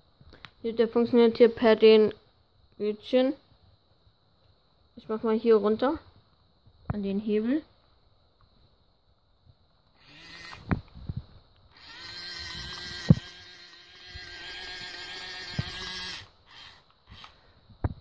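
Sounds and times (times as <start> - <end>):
toy electric motor whining: 9.9 - 10.7, 11.7 - 17.4.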